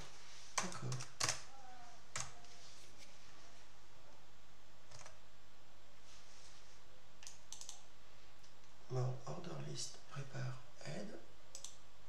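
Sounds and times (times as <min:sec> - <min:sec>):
faint steady hum: 0:00.0 - 0:12.0
mouse and keyboard clicks: 0:07.2 - 0:07.8.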